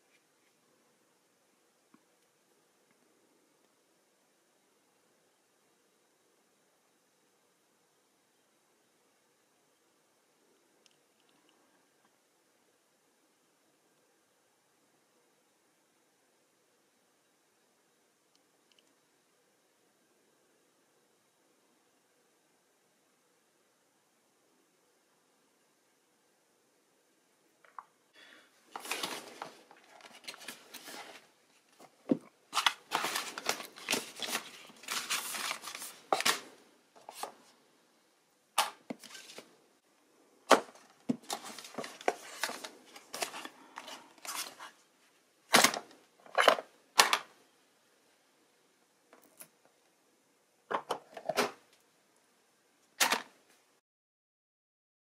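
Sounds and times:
rustling cardboard and plastic packaging: 28.6s - 37.5s, 38.6s - 39.5s, 40.5s - 47.3s.

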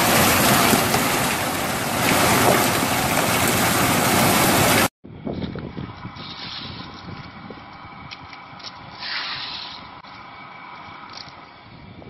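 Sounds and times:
heavy rain and hail: 0.0s - 4.9s.

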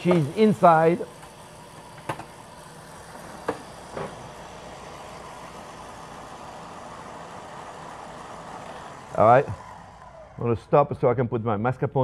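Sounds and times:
electric mixer whipping cream: 0.0s - 11.0s.

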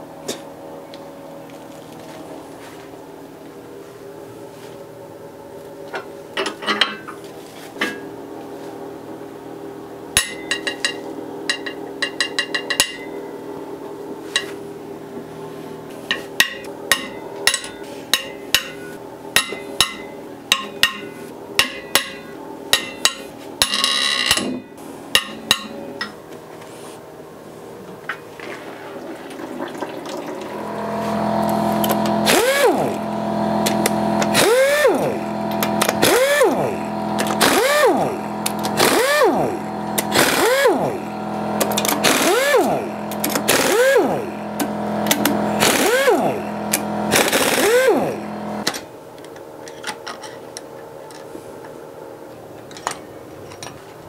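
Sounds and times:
whirring tool: 30.5s - 48.7s
ratchet clicking: 31.8s - 32.9s, 33.6s - 41.0s, 41.6s - 48.1s.

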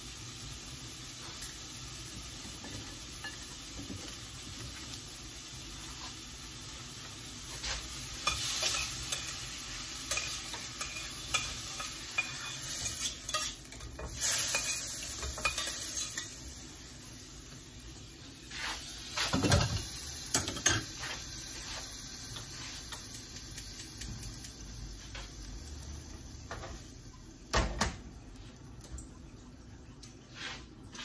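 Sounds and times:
shrimp sizzling in a frying pan: 0.0s - 29.2s
metal spoon scraping a pan: 7.5s - 16.4s.

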